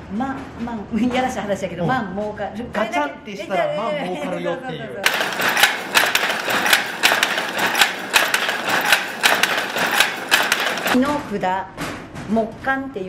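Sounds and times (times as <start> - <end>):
loom clattering: 5.0 - 11.0.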